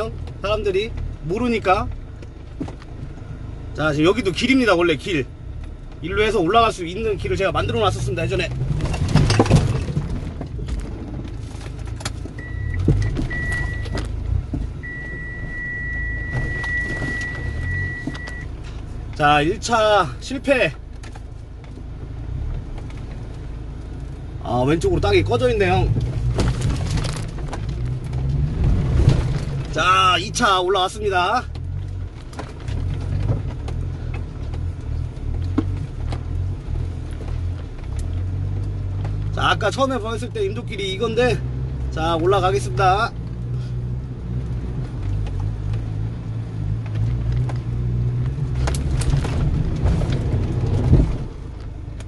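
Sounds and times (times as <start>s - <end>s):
car engine running at low speed: 0.0s - 52.0s
high electronic beep: 12.4s - 14.0s, 14.8s - 18.5s.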